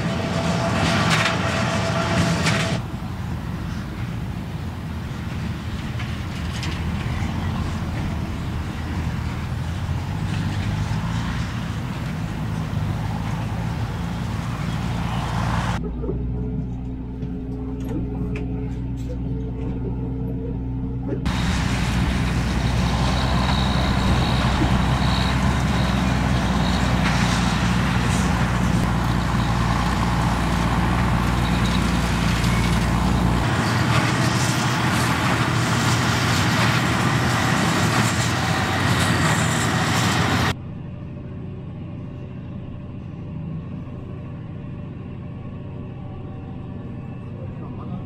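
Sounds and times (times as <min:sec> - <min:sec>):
tractor diesel engine running: 0:00.0 - 0:40.6
muffled hum inside tractor cab: 0:14.3 - 0:33.5.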